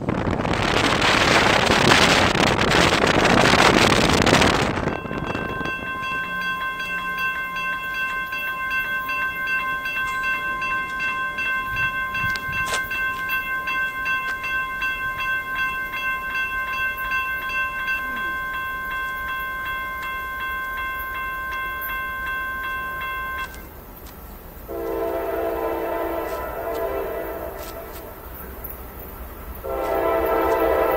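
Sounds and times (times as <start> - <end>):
railroad crossing bell ringing: 3.4 - 30.9
locomotive horn blast: 24.7 - 28.2, 29.6 - 30.9.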